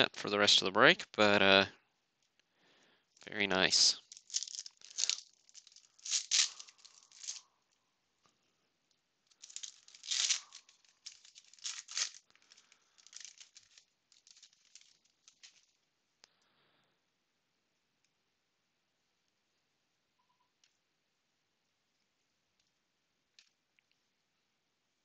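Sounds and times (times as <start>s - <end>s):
foil wrapper tearing and crinkling: 4.0s - 7.4s, 9.3s - 15.8s.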